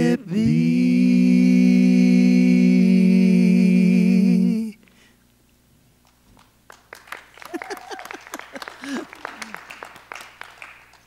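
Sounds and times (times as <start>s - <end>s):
choir holding a chord: 0.0s - 4.7s
scattered clapping: 6.0s - 11.0s.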